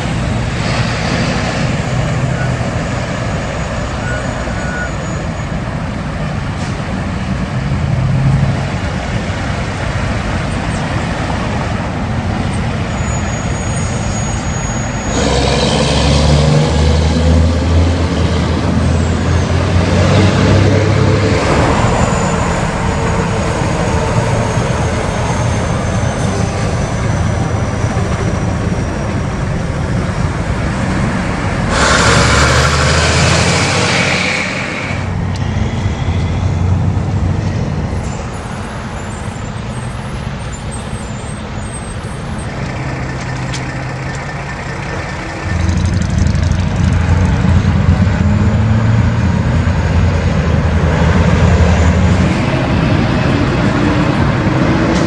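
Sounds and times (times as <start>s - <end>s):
trucks driving past: 0.0s - 55.0s
loud hiss burst: 31.7s - 35.6s.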